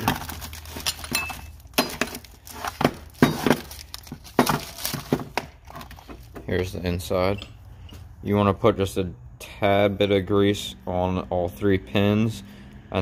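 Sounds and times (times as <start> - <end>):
metal parts clinking on workbench: 0.0 - 2.2
plastic packaging rustling: 0.0 - 6.5.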